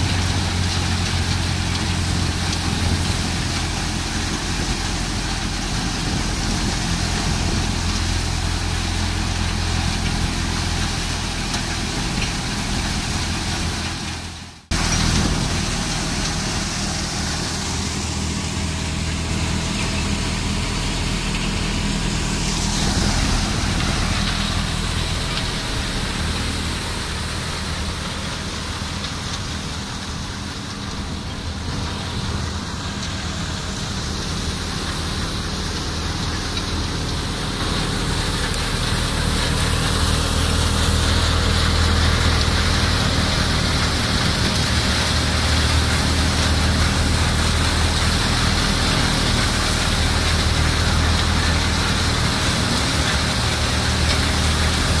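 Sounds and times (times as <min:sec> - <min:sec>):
diesel tractor engine running: 0:00.0 - 0:55.0
threshing machine hissing: 0:00.0 - 0:55.0.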